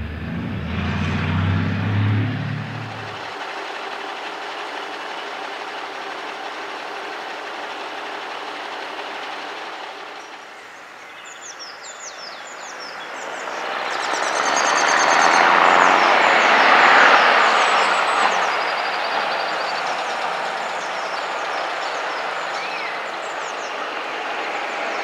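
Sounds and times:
truck diesel engine: 0.0 - 25.0
birds chirping: 10.2 - 25.0.

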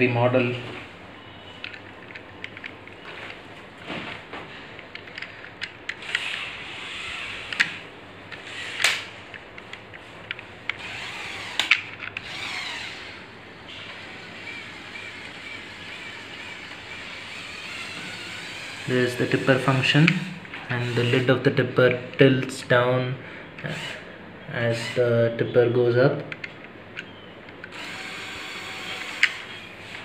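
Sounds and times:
plastic parts clicking and knocking: 1.6 - 3.4, 4.8 - 6.4, 11.5 - 12.4
toy electric motors whining: 5.1 - 9.2, 10.7 - 19.9, 20.7 - 21.4, 24.7 - 25.0, 27.7 - 30.0.

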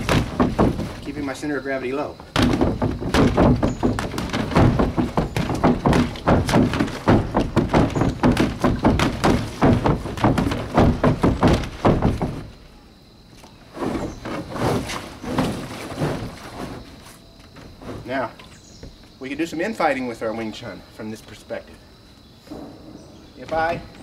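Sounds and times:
punches thudding on rubber bag: 0.0 - 1.1, 2.3 - 12.6.

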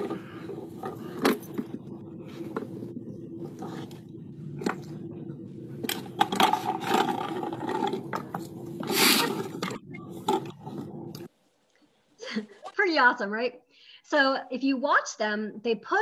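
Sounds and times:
low outdoor hum: 0.0 - 12.8
plastic parts knocking and scraping: 5.8 - 11.3.

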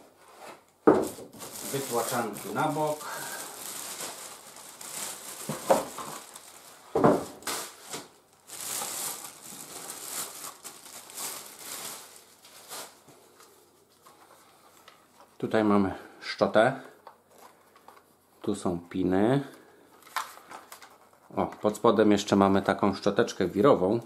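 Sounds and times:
plastic bag crinkling: 1.0 - 15.2.

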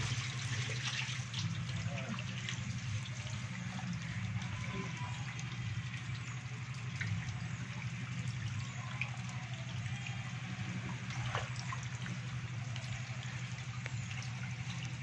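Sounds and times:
small sharp splashes: 0.0 - 2.6, 10.9 - 12.9
steady low hum: 0.0 - 15.0
water trickling and sloshing: 0.0 - 15.0.

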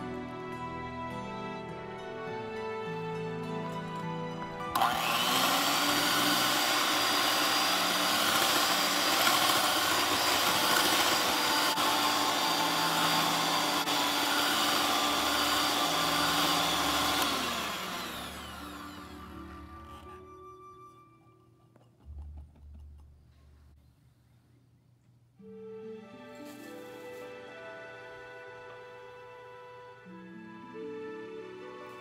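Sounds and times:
electric hand mixer whining: 4.7 - 20.3.

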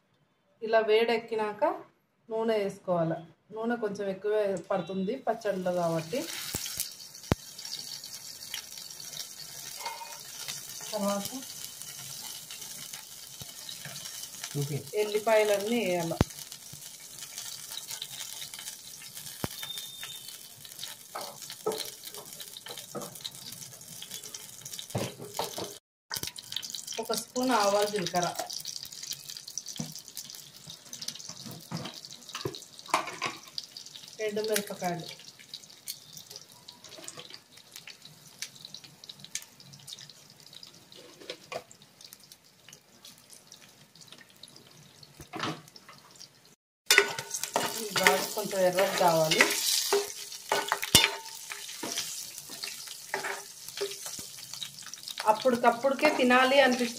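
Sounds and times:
garlic sizzling in oil: 5.0 - 56.9
small crackles and pops: 6.2 - 46.4
small pops and crackles: 6.5 - 8.0.

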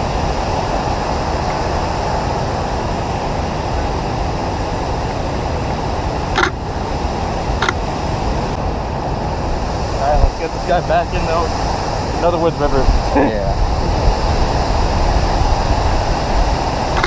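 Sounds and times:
river rushing over rocks: 0.0 - 8.6, 14.2 - 17.0.

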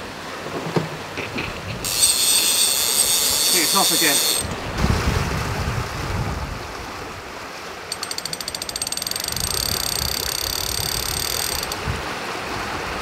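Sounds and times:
sea noise: 0.0 - 13.0
wind: 0.0 - 13.0
fishing reel drag clicking: 1.8 - 4.6, 7.9 - 11.8.

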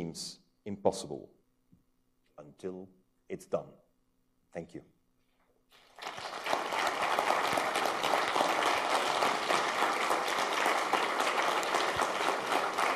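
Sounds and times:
audience applauding: 5.8 - 12.9.

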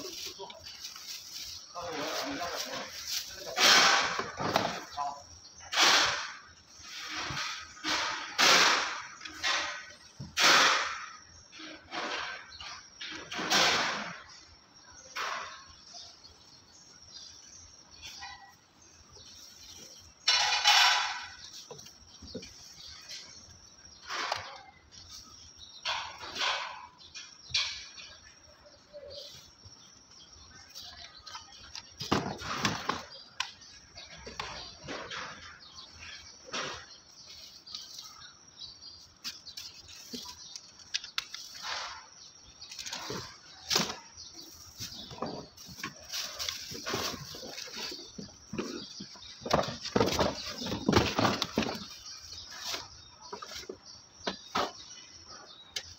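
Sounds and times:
plastic packaging rustling: 0.0 - 3.6
plastic parts knocking: 44.7 - 54.9.

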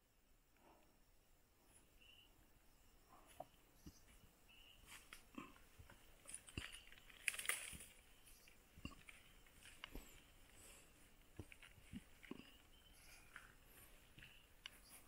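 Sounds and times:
faint footsteps on forest trail: 3.1 - 15.0.

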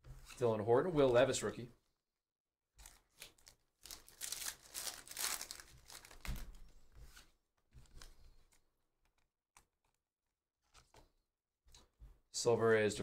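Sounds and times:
wrapper crinkling and tearing: 2.8 - 6.6
cards rustling: 2.8 - 8.6.

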